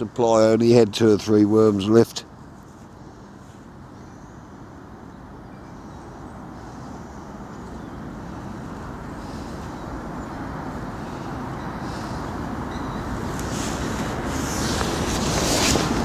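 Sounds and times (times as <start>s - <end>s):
gusty wind on microphone: 7.2s - 16.0s.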